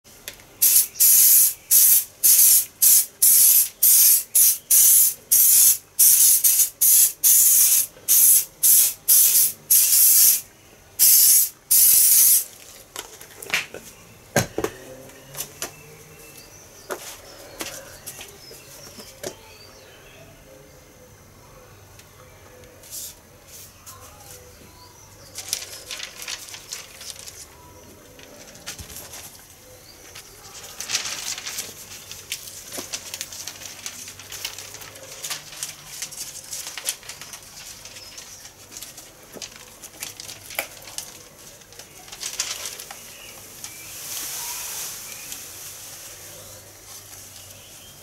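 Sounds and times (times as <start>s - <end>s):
paper stencils rustling and crackling: 11.7s - 14.0s, 25.1s - 48.0s.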